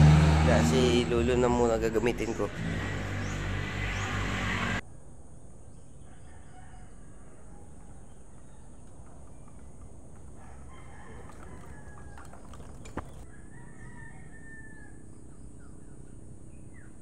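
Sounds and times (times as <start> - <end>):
roosters crowing faintly: 6.0 - 14.9.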